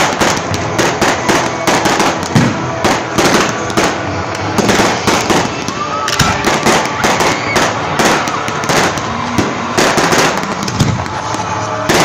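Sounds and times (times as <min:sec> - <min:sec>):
fireworks bangs: 0:00.0 - 0:12.0
fireworks crackling: 0:00.0 - 0:12.0.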